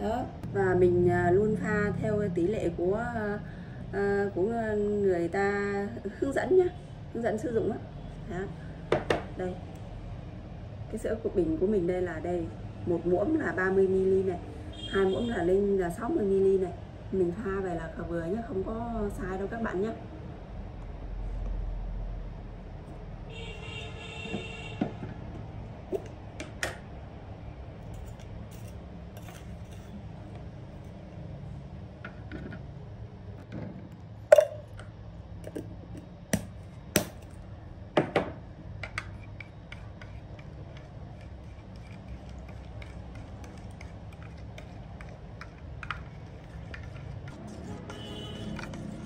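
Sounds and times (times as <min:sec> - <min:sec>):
spoon stirring in jug: 0:27.9 - 0:31.0, 0:38.8 - 0:49.0.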